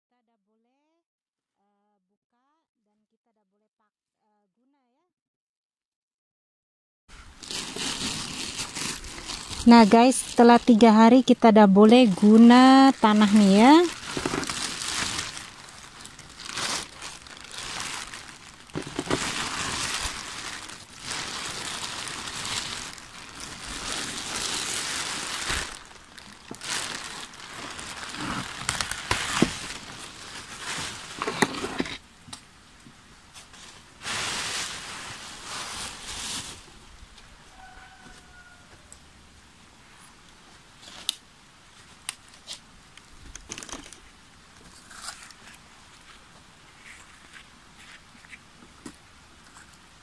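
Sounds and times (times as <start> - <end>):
plastic sheet crinkling: 7.3 - 32.0, 33.4 - 36.7, 43.3 - 44.0.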